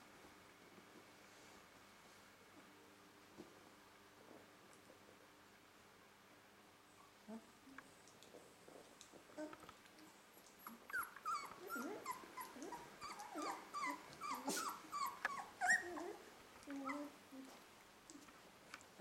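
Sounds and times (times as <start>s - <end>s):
puppies whimpering and yipping: 10.6s - 17.2s.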